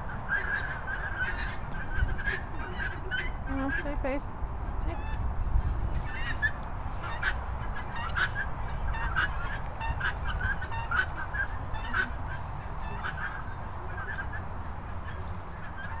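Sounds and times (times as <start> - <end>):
fowl honking: 0.0 - 4.0, 6.1 - 16.0
wind rumbling on microphone: 0.0 - 16.0.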